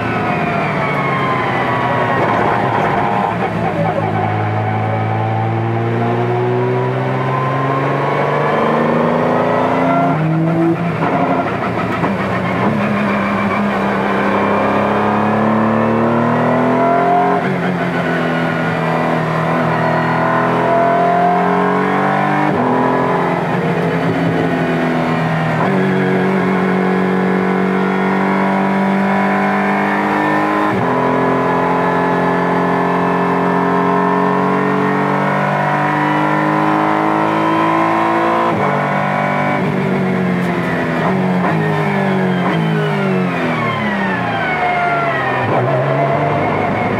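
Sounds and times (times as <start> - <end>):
race car engine with gearshifts: 0.0 - 46.9.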